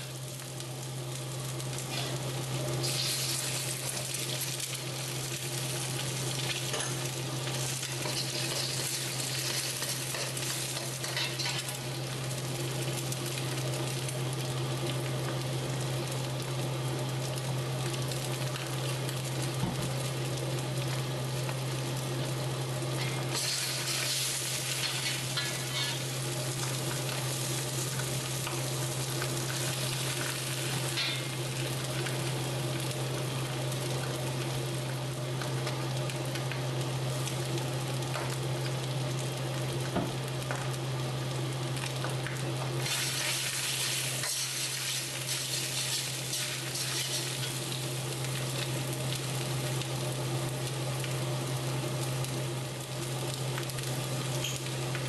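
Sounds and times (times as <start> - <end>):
food sizzling in a wok: 0.0 - 55.0.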